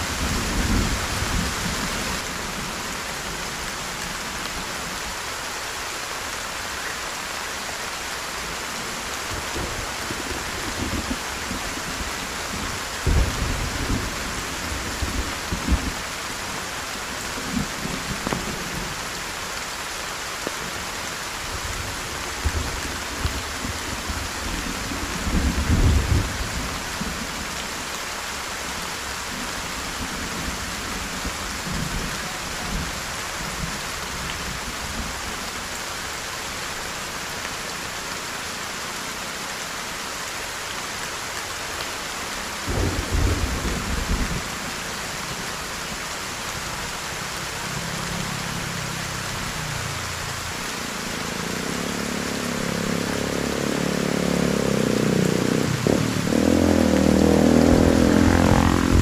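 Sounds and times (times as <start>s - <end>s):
heavy rain: 0.0s - 59.0s
low rumbles: 55.5s - 59.0s.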